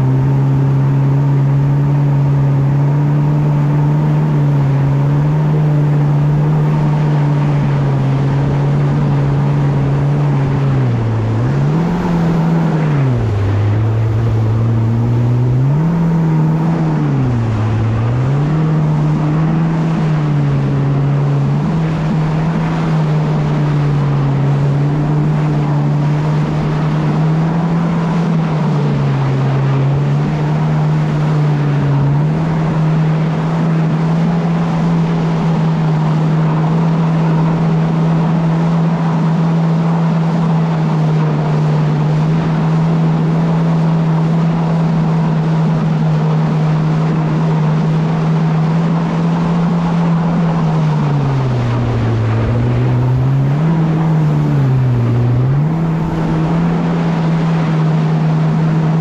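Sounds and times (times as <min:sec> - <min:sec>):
vehicle engine running: 0:00.0 - 0:59.0.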